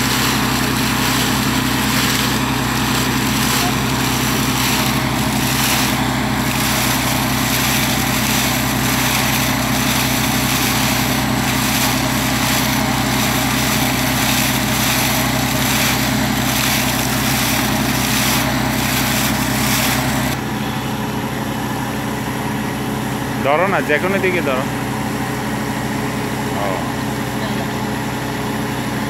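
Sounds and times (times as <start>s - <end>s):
water gushing and splashing: 0.0s - 20.5s
engine drone: 0.0s - 29.0s.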